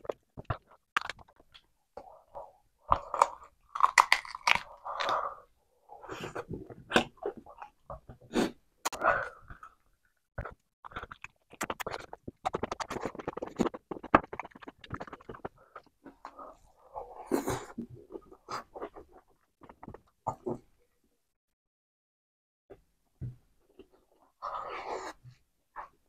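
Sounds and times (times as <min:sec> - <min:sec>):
wet smacking chewing: 0:10.4 - 0:16.4.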